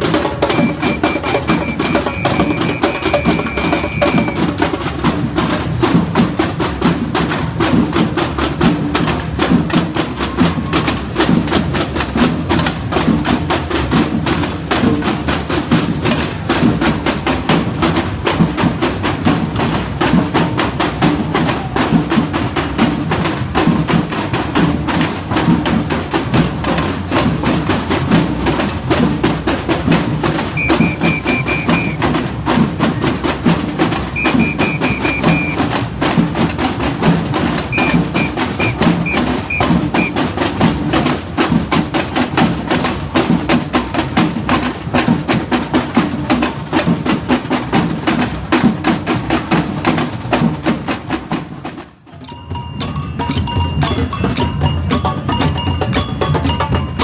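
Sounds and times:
samba percussion band: 0.0s - 57.0s.

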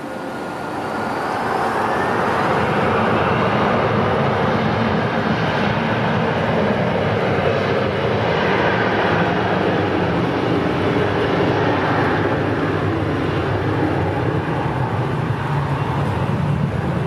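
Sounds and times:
faint rising whine: 0.0s - 4.4s
jet engines roaring: 0.0s - 17.0s.

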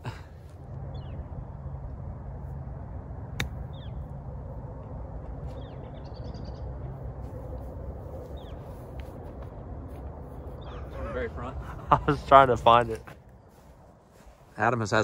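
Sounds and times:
low outdoor rumble: 0.0s - 15.0s
golf club striking ball: 3.4s - 3.8s
small birds chirping: 3.6s - 4.1s, 5.4s - 7.0s, 8.2s - 8.8s, 10.3s - 11.4s.

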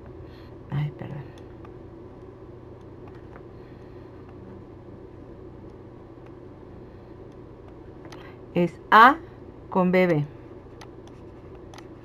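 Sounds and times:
low hum and hiss: 0.0s - 12.0s
computer mouse clicks: 10.7s - 11.9s.

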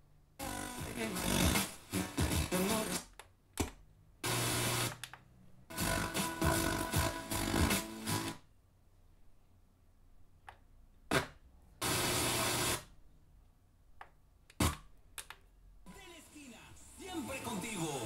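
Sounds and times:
radio station audio: 0.4s - 3.1s, 15.9s - 18.0s.

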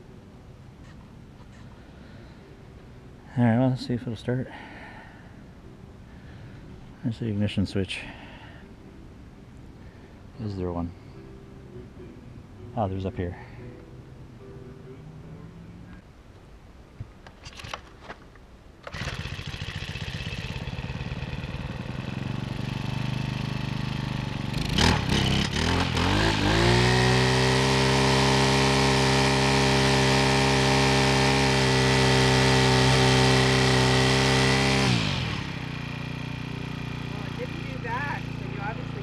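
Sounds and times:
string trimmer engine running: 18.8s - 39.0s.

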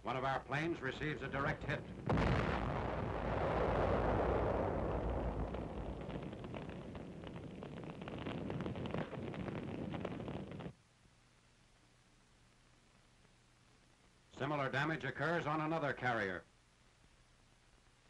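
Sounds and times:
faint hum: 0.0s - 18.0s
explosion and fire roaring: 1.0s - 10.8s
crackles and bangs: 1.3s - 10.8s.

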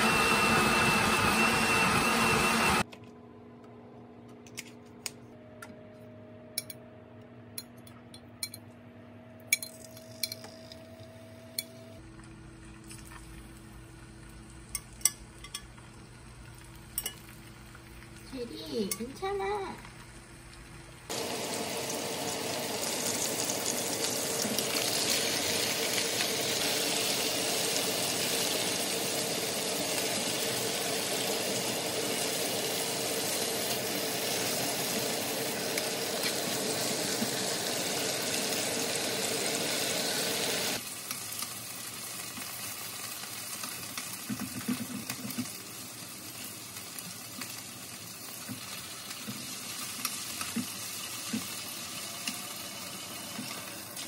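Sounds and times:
chicken sizzling in a frying pan: 13.4s - 54.0s.

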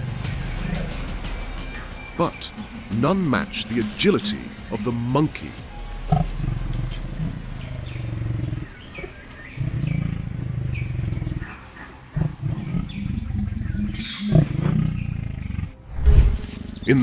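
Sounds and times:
bird chirps: 5.6s - 15.6s
leopard growling: 6.0s - 15.8s.

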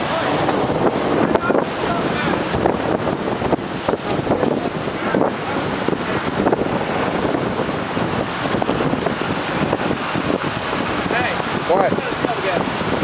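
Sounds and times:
strong wind on microphone: 0.0s - 13.0s.

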